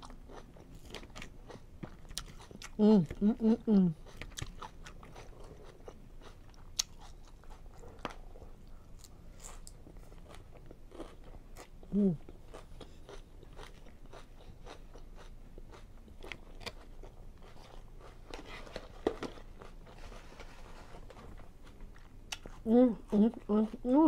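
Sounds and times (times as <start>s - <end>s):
chewing and crunching: 0.0s - 24.0s
person humming: 2.8s - 4.0s, 11.9s - 12.2s, 22.7s - 24.0s.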